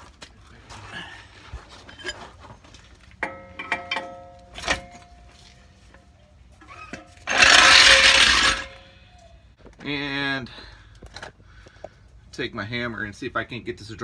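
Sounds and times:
ringing metallic squeak: 0:06.7 - 0:09.2
rough rustling scrape: 0:07.1 - 0:08.9.

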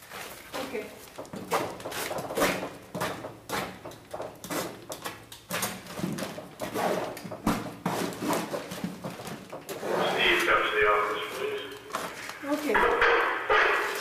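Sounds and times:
scraping and rustling of paintings: 0:00.0 - 0:12.8.

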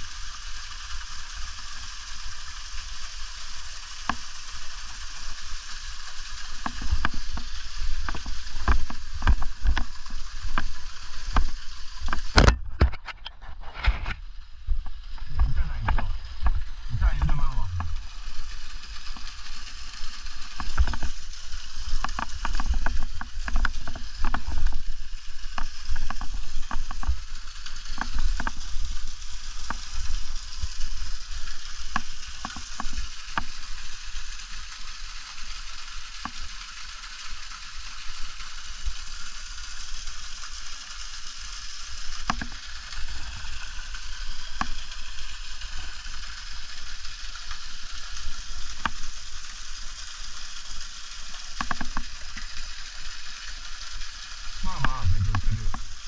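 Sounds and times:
sharp drips and taps: 0:04.0 - 0:04.4, 0:06.4 - 0:13.2, 0:14.7 - 0:18.2, 0:20.3 - 0:24.8, 0:25.5 - 0:28.7, 0:29.5 - 0:30.7, 0:31.8 - 0:33.7, 0:36.2 - 0:37.1, 0:42.2 - 0:46.2, 0:47.9 - 0:49.2, 0:51.2 - 0:53.0, 0:54.6 - 0:55.9
water falling: 0:14.8 - 0:56.0
low rumble: 0:15.2 - 0:18.4, 0:54.6 - 0:56.0.

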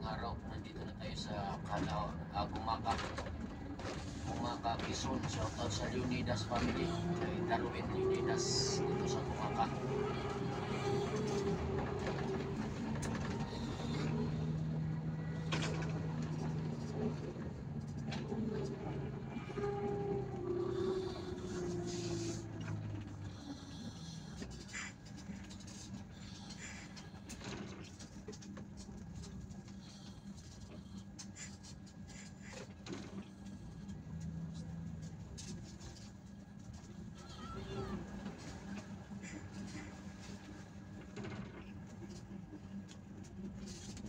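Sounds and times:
bus engine humming: 0:00.0 - 0:26.8
tyre road noise: 0:01.5 - 0:23.6.

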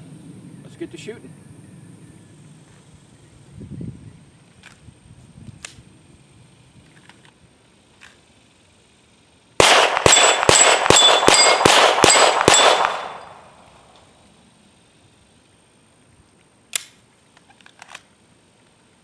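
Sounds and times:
pistol shots: 0:09.6 - 0:13.6
sharp clicks: 0:16.4 - 0:18.1.

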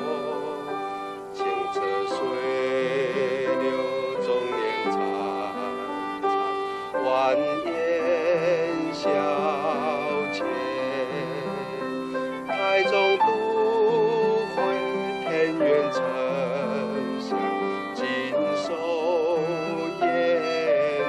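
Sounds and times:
slow violin melody: 0:00.0 - 0:21.0.

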